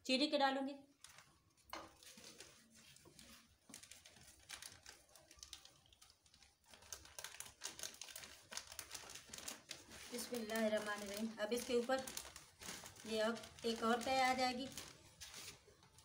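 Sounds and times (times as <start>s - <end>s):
rice crackling and clicking in pot: 3.5s - 15.1s.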